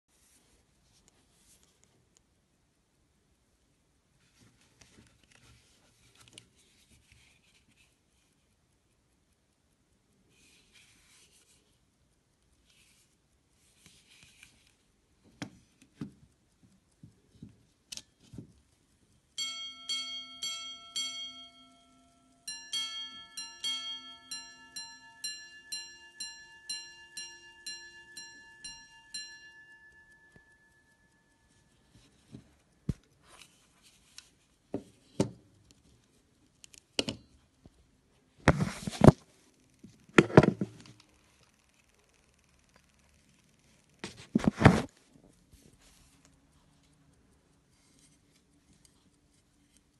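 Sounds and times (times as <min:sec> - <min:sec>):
pocket watch gongs chiming: 0:19.4 - 0:32.0
small clicks: 0:39.4 - 0:44.3.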